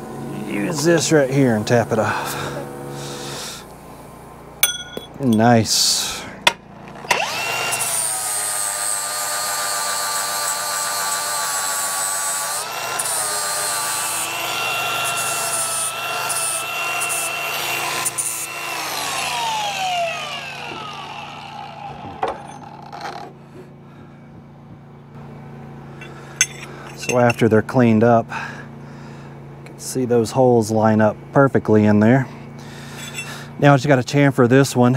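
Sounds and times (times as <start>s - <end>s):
angle grinder grinding steel: 0.0s - 3.6s, 6.9s - 23.4s, 26.0s - 27.5s, 32.7s - 33.6s.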